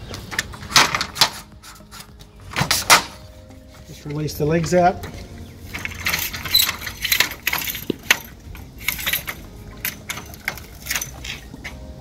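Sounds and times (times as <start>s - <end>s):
metal legs clicking and rattling: 0.0s - 3.2s, 3.9s - 11.9s
ringing metal clink: 5.7s - 11.4s.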